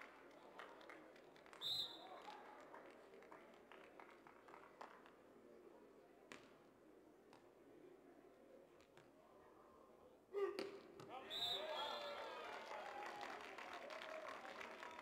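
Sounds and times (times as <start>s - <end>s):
referee's whistle blast: 11.2s - 12.2s.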